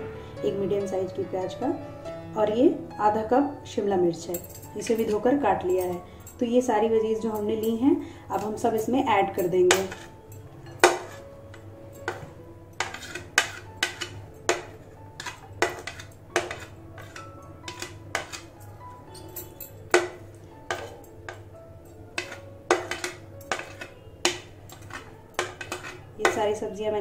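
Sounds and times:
faint background music: 0.0 - 27.0
metal spoon scraping wooden board: 10.8 - 11.3, 12.1 - 18.6, 22.2 - 26.4
spoon clinking on glass bowl: 12.0 - 26.4.

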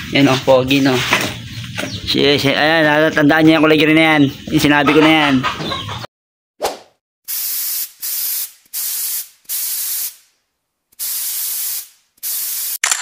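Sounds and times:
spray hiss bursts: 7.3 - 10.3, 11.0 - 12.8.

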